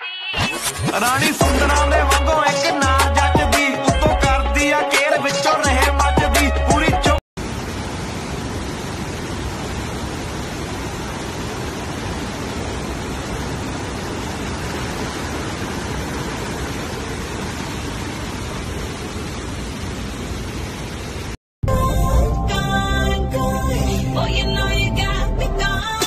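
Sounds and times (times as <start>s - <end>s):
stream flowing over road: 7.4s - 21.4s
waterfall rushing: 7.4s - 21.4s.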